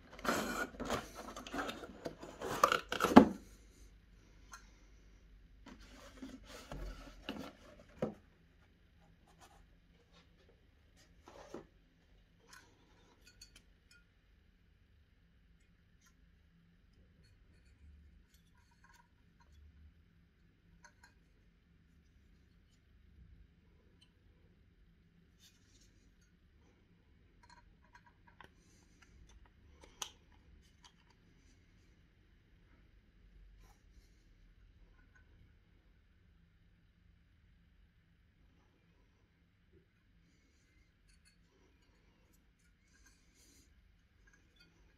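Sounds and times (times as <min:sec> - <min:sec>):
cardboard rubbing and scraping: 0:00.0 - 0:03.4.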